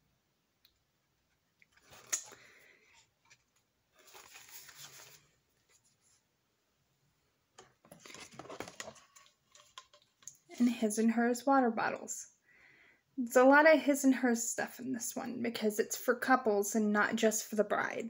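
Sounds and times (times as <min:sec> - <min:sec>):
rustling in a box: 0:03.0 - 0:06.2, 0:07.8 - 0:10.8.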